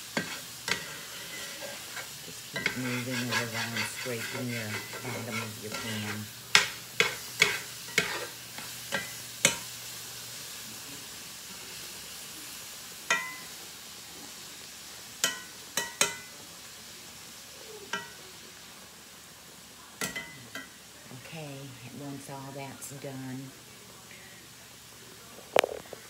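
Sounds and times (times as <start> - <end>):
vegetables sizzling in skillet: 0.0 - 26.0.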